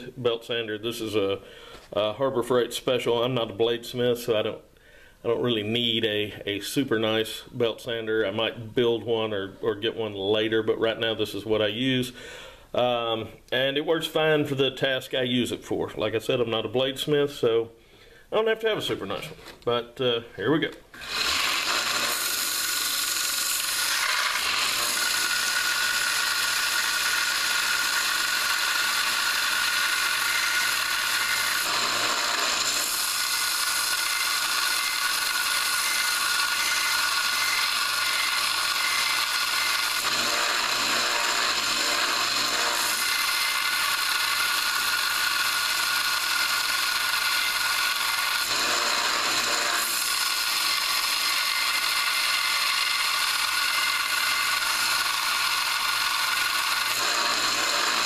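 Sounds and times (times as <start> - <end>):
belt sander whine: 21.0 - 58.0
chisel grinding hiss: 21.0 - 58.0.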